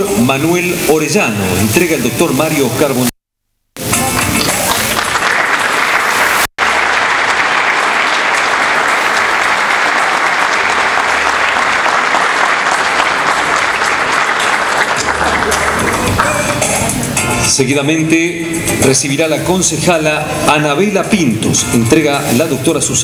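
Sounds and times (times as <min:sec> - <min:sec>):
audience applauding: 0:03.9 - 0:17.0.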